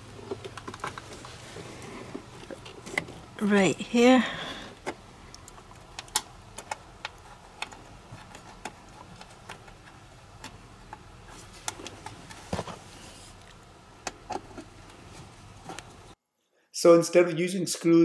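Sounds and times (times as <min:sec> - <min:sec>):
cables and plastic parts clicking: 0:00.1 - 0:01.4, 0:04.8 - 0:16.0.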